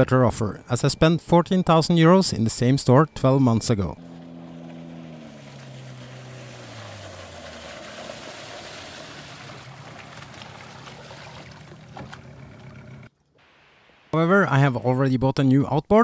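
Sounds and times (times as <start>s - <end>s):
outboard motor passing by: 2.6s - 13.1s.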